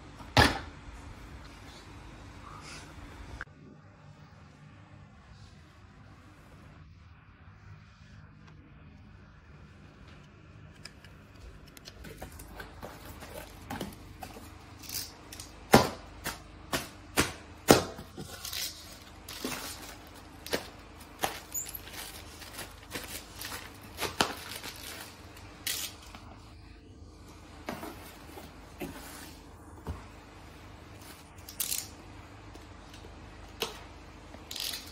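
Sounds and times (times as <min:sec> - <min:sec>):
plastic packaging crinkling: 0:18.2 - 0:26.2.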